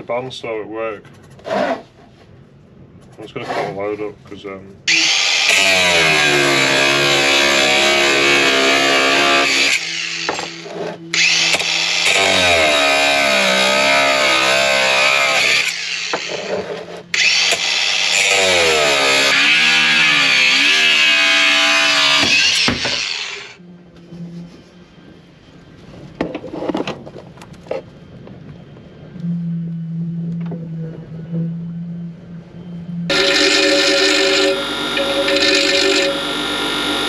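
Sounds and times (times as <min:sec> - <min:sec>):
angle grinder cutting steel: 0:04.9 - 0:23.6, 0:33.1 - 0:37.0.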